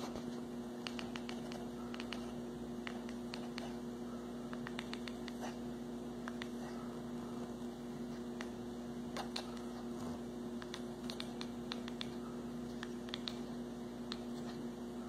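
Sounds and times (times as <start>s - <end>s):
steady low hum: 0.0s - 15.0s
kitten chattering teeth clicks: 10.6s - 12.1s.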